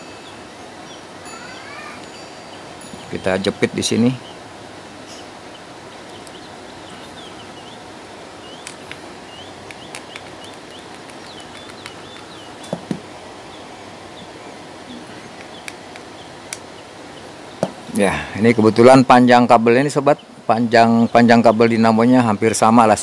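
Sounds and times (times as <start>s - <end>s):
steady hiss: 0.0s - 23.0s
faint bird chirps: 5.0s - 12.7s, 13.5s - 18.6s.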